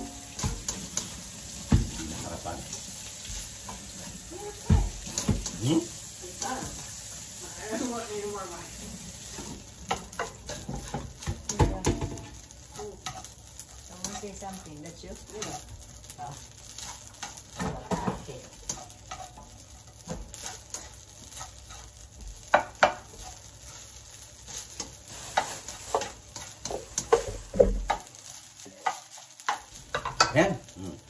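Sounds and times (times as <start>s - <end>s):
spatula scraping a pan: 0.0s - 30.4s
light sizzle: 0.0s - 31.0s.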